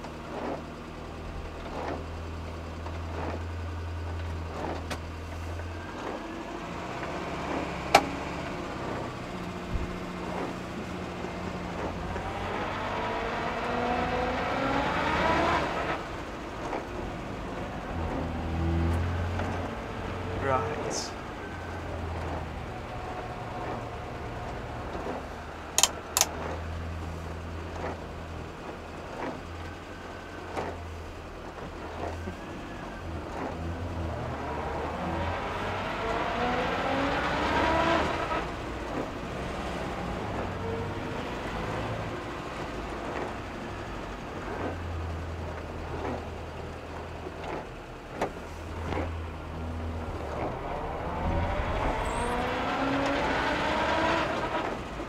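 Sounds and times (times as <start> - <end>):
car engine accelerating: 0.0 - 55.0
sharp clicks: 25.8 - 26.4.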